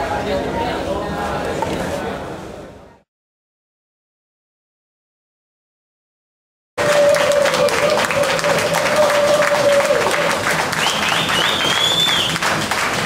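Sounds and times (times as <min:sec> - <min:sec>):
crowd clapping and applauding: 0:06.8 - 0:13.0.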